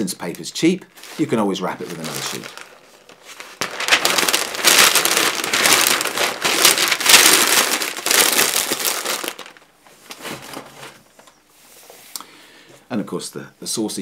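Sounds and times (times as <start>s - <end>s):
paper crinkling and rustling: 1.0s - 11.4s.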